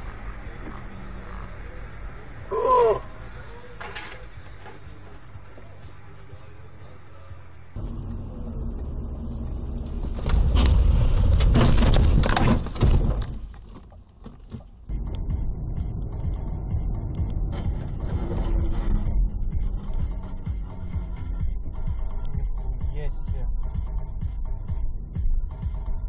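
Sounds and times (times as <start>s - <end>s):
car engine and road rumble: 0.0s - 26.0s
clattering and knocking: 10.0s - 14.9s.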